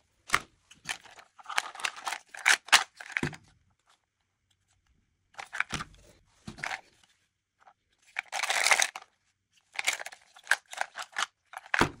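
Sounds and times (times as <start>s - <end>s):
pencils rattling in a box: 0.9s - 3.2s, 8.1s - 9.1s, 9.8s - 11.8s.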